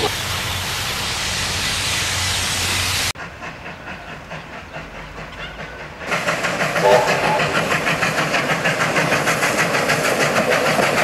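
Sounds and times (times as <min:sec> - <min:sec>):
steam hissing: 0:00.0 - 0:05.2
passing train rhythmic beat: 0:03.2 - 0:11.0.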